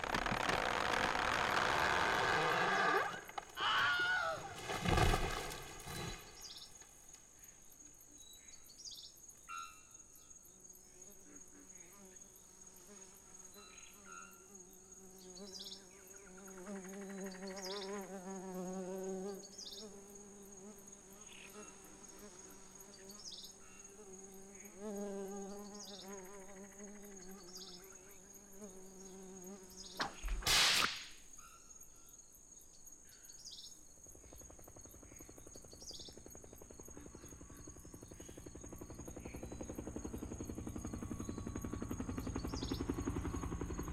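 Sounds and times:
buzzing fly hovering: 0.0 - 6.7, 11.0 - 30.3
insect chirps: 0.0 - 43.9
loud burst: 30.4 - 31.2.

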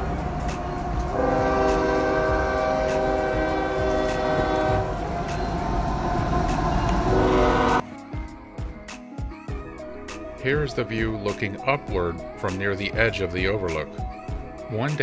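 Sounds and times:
train horn: 0.0 - 7.8
train rumbling along tracks: 0.0 - 7.8.

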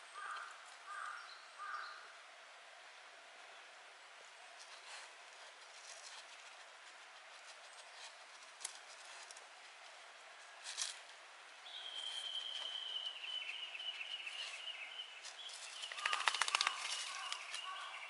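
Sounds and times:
dog rustling dry leaves: 4.6 - 18.0.

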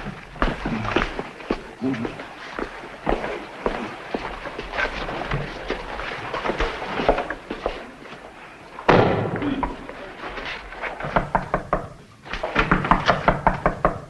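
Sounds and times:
footsteps on wooden floor: 0.0 - 13.7
loud bang: 8.9 - 9.6.

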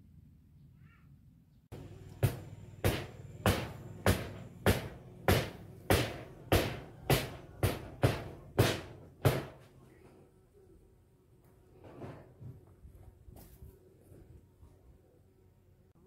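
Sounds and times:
evenly spaced thuds: 1.8 - 9.7.

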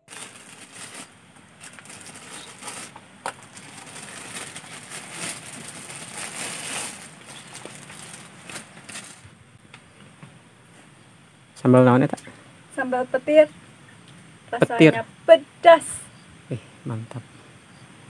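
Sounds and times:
banana leaves rustling and crackling: 0.0 - 10.8.

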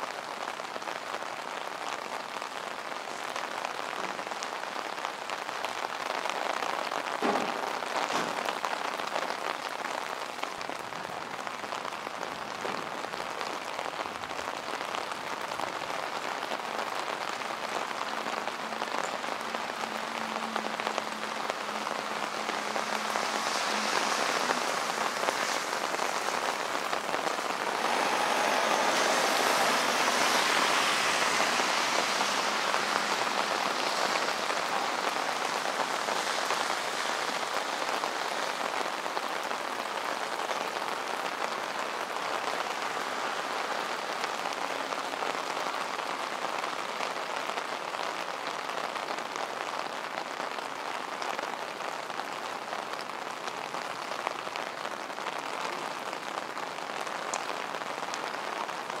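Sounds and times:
rain pattering on streets: 0.0 - 59.0.

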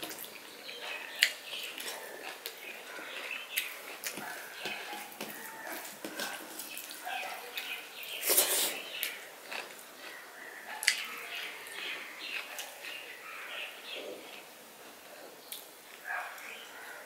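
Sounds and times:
wet chewing and mouth smacks: 0.0 - 13.2.

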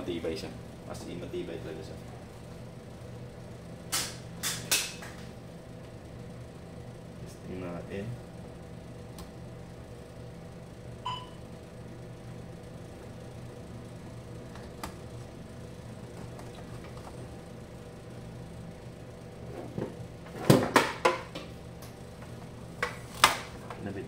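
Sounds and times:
steady low hum: 0.0 - 24.0
short electronic beep: 11.1 - 11.4.

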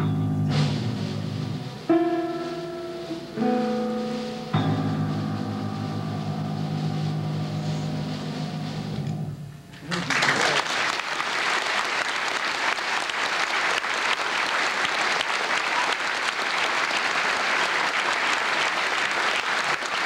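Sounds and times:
audience applauding: 9.8 - 20.0.

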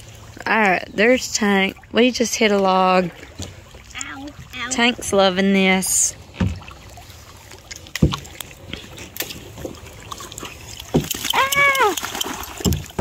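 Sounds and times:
paddle knocking and sloshing: 0.0 - 13.0
dog splashing in water: 9.2 - 13.0.

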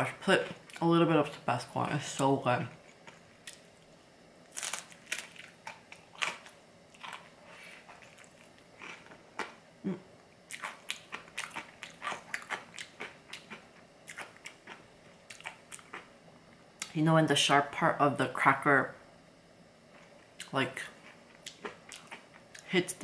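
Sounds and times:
crunching and chewing cracker: 2.8 - 9.6, 10.5 - 16.1, 20.0 - 22.7.

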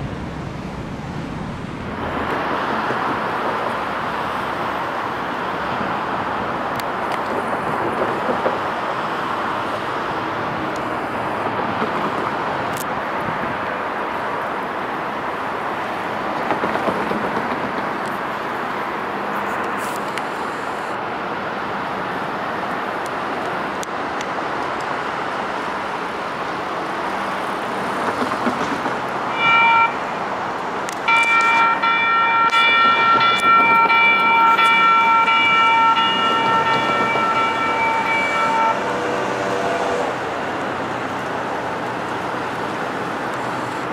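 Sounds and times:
light rail train running: 0.0 - 43.9
high-pitched warning tone: 29.3 - 30.1, 31.1 - 39.0.

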